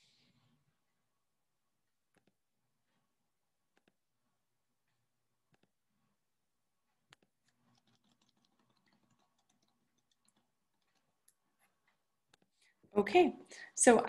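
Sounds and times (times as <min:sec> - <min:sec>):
computer mouse clicks: 0:02.1 - 0:02.4, 0:03.7 - 0:04.0, 0:05.5 - 0:05.7, 0:07.1 - 0:11.4.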